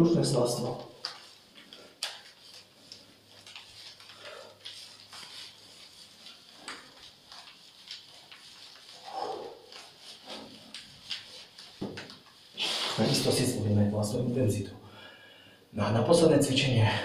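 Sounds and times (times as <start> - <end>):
rustling and taps on exercise mat: 0.8 - 12.6.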